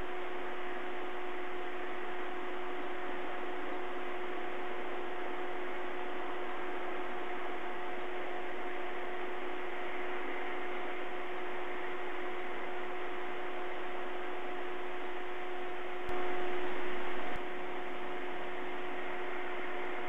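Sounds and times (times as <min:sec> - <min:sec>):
low two-tone electrical hum: 0:00.0 - 0:20.0.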